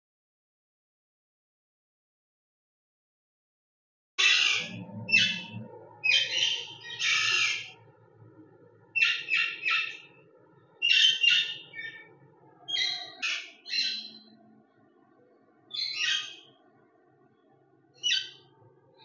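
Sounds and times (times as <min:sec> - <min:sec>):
parakeets squawking: 0:04.2 - 0:07.8, 0:09.0 - 0:10.1, 0:10.8 - 0:12.1, 0:12.7 - 0:14.2, 0:15.8 - 0:16.5, 0:18.0 - 0:18.4.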